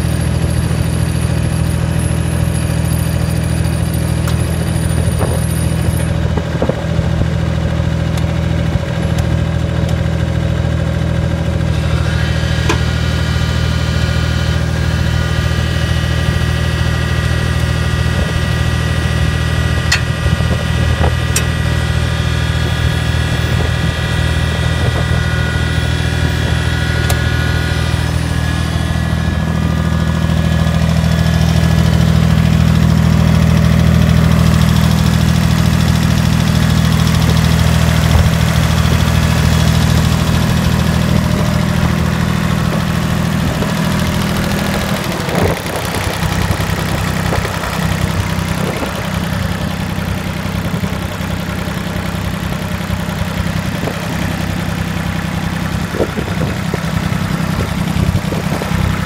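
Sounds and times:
engine knocks: 0.0s - 59.0s
tractor diesel engine running: 0.0s - 59.0s.

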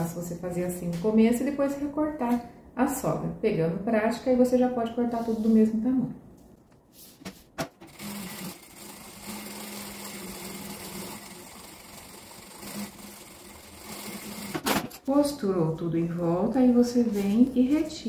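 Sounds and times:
sewing machine running: 7.9s - 15.1s.

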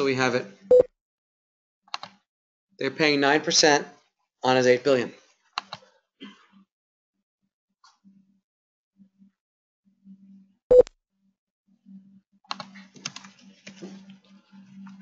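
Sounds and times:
keyboard keystroke clicks: 1.9s - 2.2s.

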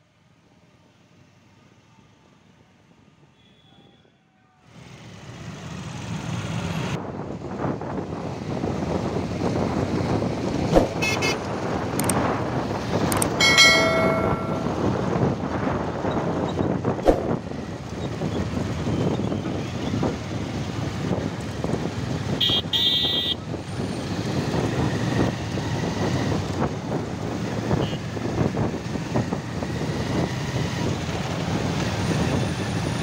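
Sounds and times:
road and wind noise: 0.0s - 33.0s
motorcycle engines running: 9.2s - 33.0s.

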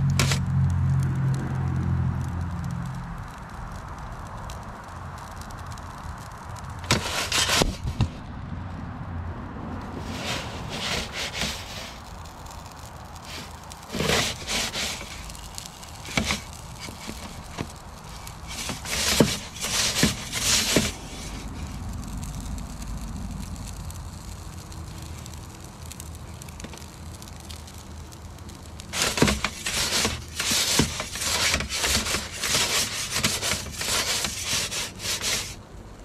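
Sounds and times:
low steady rumble: 0.0s - 10.9s, 11.5s - 32.4s
fire crackles: 0.0s - 36.0s
scraping clatters: 29.0s - 35.5s.

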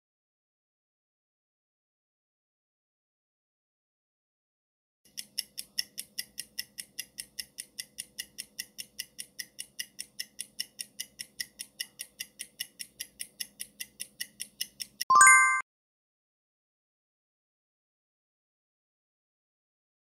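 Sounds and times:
fast clock ticking: 5.1s - 15.1s.

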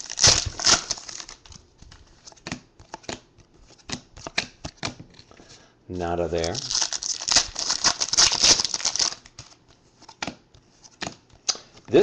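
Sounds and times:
wrapper crinkling: 0.0s - 2.0s, 6.4s - 9.6s.

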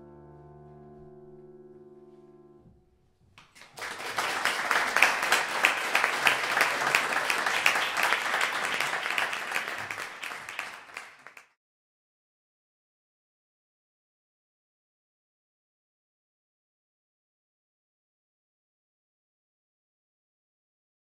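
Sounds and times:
audience applause: 3.4s - 11.5s.

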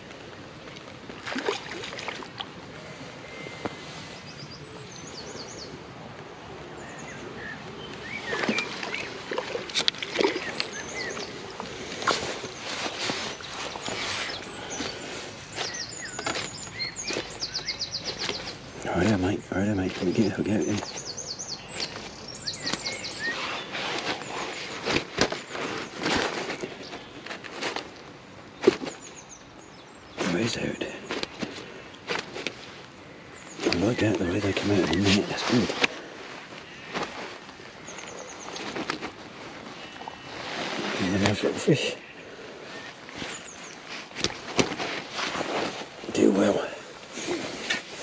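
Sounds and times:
water splashing and sloshing: 0.0s - 4.3s, 7.6s - 18.8s, 21.8s - 29.1s
faint bird chirps: 2.7s - 5.8s, 10.2s - 24.8s
small birds chirping: 2.7s - 48.0s
rustling in a landing net: 7.0s - 29.4s, 30.1s - 48.0s.

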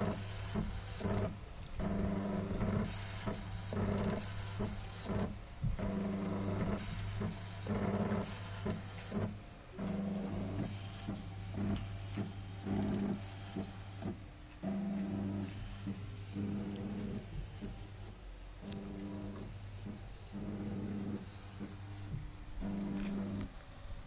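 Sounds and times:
stepper motors buzzing: 0.0s - 24.0s.

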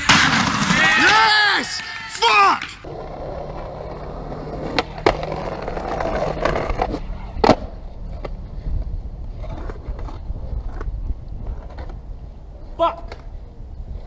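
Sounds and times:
skateboard wheels rolling on pavement: 0.0s - 14.0s
skateboard clacking on ground: 1.8s - 8.4s.

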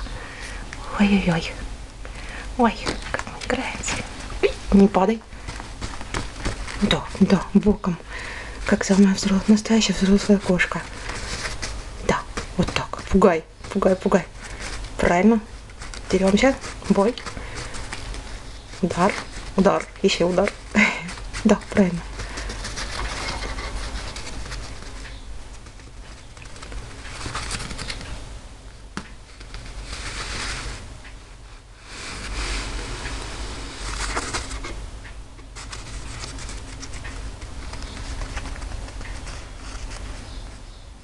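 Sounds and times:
kitten pawing on jacket: 2.8s - 7.9s, 8.7s - 28.1s, 35.5s - 40.2s
cloth rustling: 2.9s - 28.2s, 29.2s - 31.0s.

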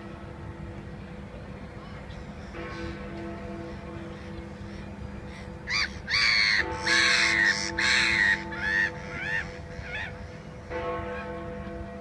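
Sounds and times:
clock-tower bells humming: 0.0s - 12.0s
gulls calling: 4.2s - 11.3s.

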